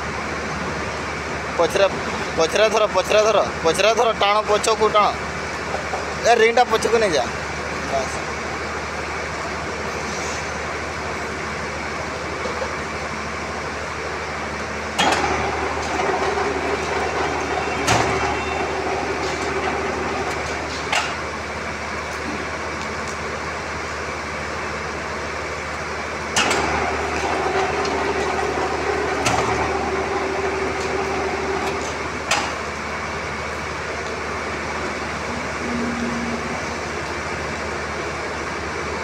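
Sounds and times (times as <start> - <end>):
rebar bending machine motor hum: 14.9 - 22.7, 26.0 - 39.0
machine clunk: 15.0 - 21.2, 26.4 - 28.5, 29.1 - 30.0, 30.8 - 32.6
turntable whine: 33.6 - 38.2.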